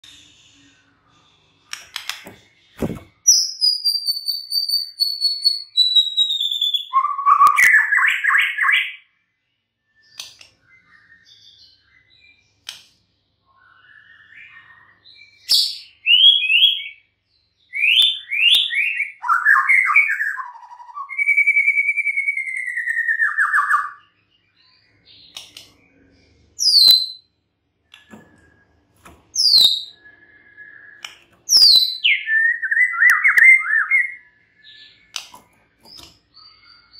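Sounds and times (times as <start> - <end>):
sharp clicks: 1.7 - 3.0, 35.1 - 36.2
bird singing whistles and trills: 2.8 - 9.1, 9.8 - 12.7, 13.4 - 36.9.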